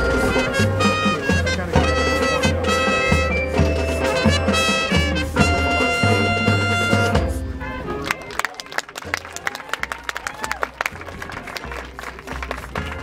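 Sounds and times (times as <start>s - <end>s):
marching band brass chords: 0.0s - 13.0s.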